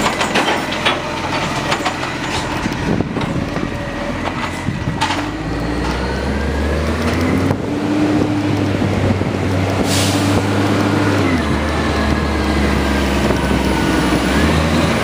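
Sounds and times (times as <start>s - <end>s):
garbage truck running: 0.0s - 15.0s
passing vehicle engine: 1.8s - 15.0s.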